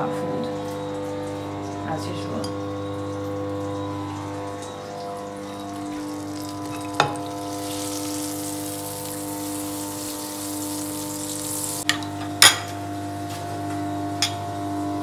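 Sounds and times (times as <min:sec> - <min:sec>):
butter sizzling in a pan: 0:03.4 - 0:11.9.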